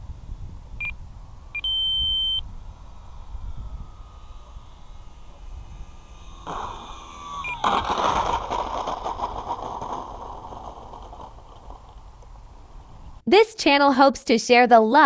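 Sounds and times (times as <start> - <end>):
electric motor whine: 0.0 - 13.2
wheels rattling over rough ground: 5.9 - 13.2.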